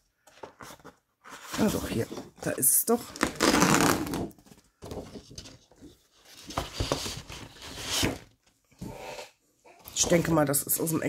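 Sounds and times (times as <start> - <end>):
paper sheets rustling and flapping: 3.2 - 8.3.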